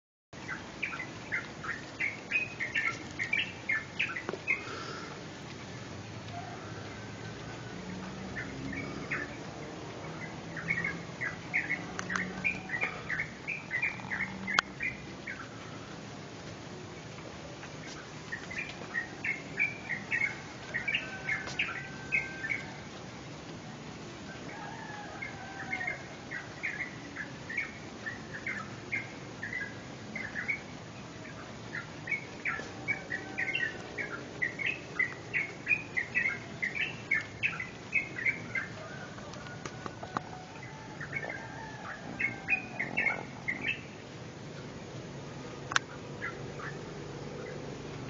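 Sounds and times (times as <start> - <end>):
songbirds chirping: 0.4 - 48.0.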